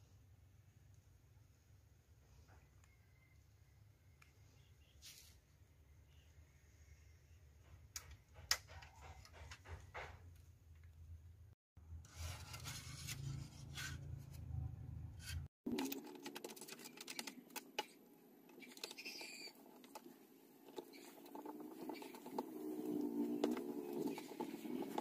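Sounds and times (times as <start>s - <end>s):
light clicks taps and scrapes: 15.2s - 25.0s.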